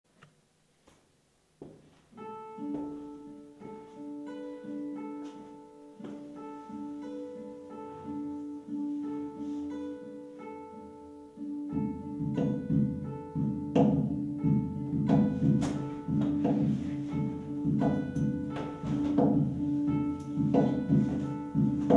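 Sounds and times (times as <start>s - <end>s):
acoustic guitar melody: 1.6s - 21.9s
cajon hits: 11.8s - 21.9s.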